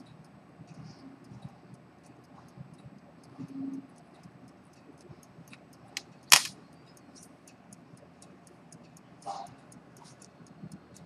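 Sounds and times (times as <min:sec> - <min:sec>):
pocket watch ticking: 0:00.0 - 0:11.0
sharp click: 0:05.5 - 0:06.6.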